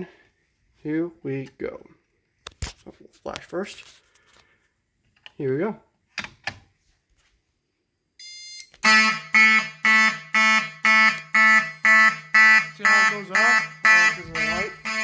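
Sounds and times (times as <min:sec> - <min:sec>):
brief beep: 0:08.2 - 0:08.7
fire alarm horn pulsing: 0:08.2 - 0:15.0.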